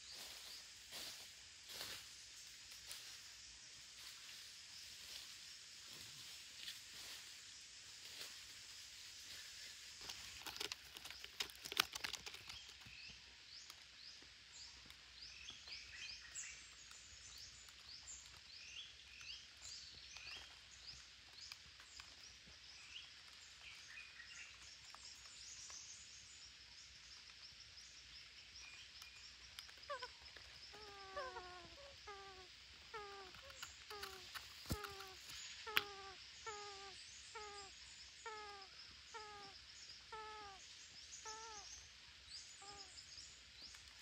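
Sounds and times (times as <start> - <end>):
bird chirps: 10.0 - 44.0.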